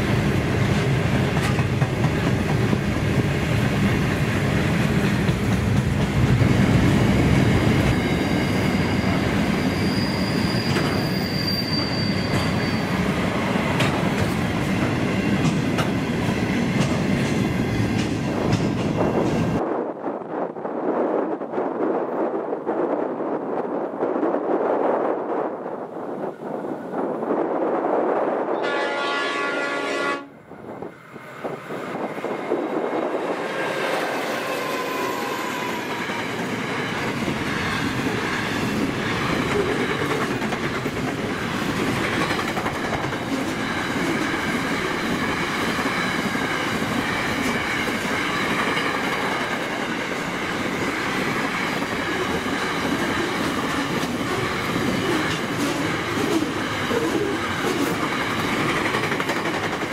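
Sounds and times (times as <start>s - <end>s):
freight train rolling past: 0.0s - 59.9s
train wheels clacking over rail joints: 0.7s - 3.8s, 13.7s - 19.6s, 36.1s - 59.9s
locomotive horn: 28.6s - 30.4s.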